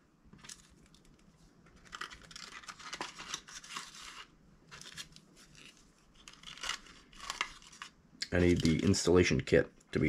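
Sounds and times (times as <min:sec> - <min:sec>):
packaging rustling and scratching: 0:00.4 - 0:09.0.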